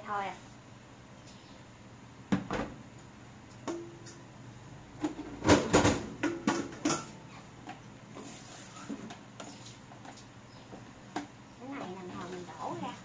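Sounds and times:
kitchenware clattering: 5.0 - 7.8.

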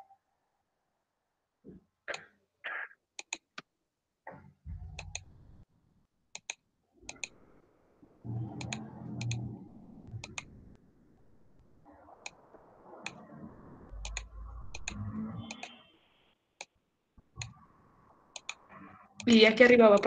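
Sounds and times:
computer mouse clicking: 3.2 - 3.7, 5.0 - 5.3, 6.3 - 7.4, 8.5 - 9.4, 10.2 - 10.5, 14.0 - 15.8, 17.4 - 17.6, 18.3 - 18.6, 19.2 - 20.0.

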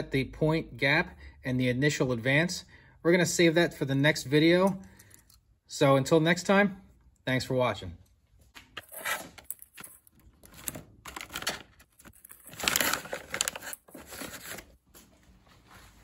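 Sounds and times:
treat bag crinkling: 9.5 - 14.8.

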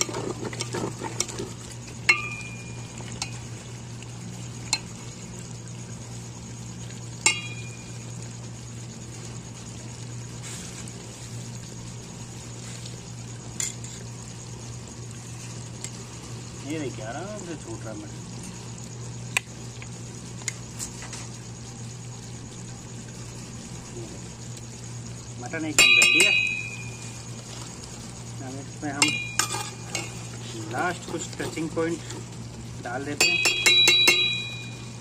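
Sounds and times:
ladle stirring stew in pot: 0.0 - 1.6
steady low hum: 0.0 - 35.0
ladle clinking against pot: 25.8 - 26.8, 29.0 - 30.2, 33.2 - 34.8.

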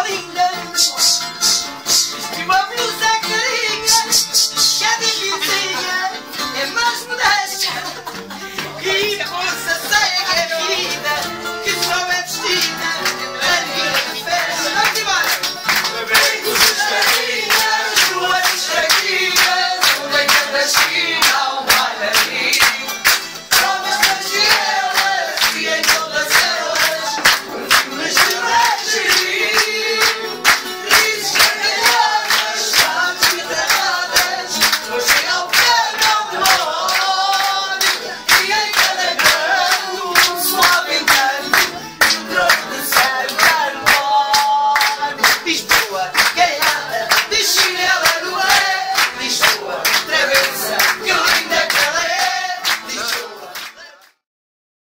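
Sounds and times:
guitars playing: 0.0 - 53.5
group of people singing: 0.0 - 54.2
people clapping a beat: 0.0 - 54.2.

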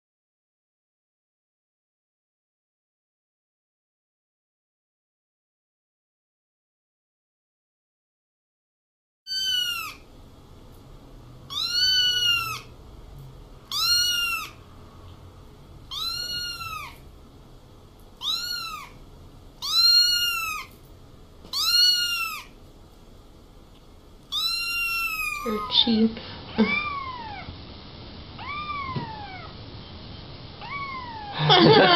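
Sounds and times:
kitten meowing: 9.3 - 10.0, 11.5 - 12.7, 13.7 - 14.6, 15.9 - 17.0, 18.2 - 19.0, 19.6 - 20.7, 21.5 - 22.6, 24.3 - 26.0, 26.6 - 27.5, 28.4 - 29.5, 30.6 - 31.4.

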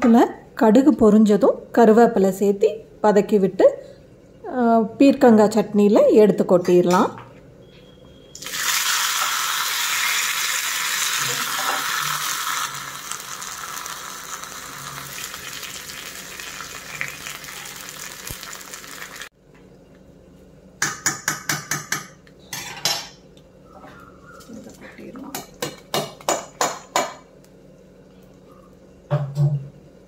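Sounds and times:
oil sizzling and spluttering: 8.4 - 19.3.

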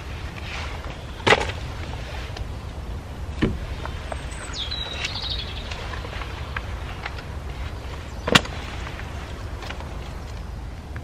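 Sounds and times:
low background rumble: 0.0 - 11.0
camping gear clicks: 3.4 - 11.0.

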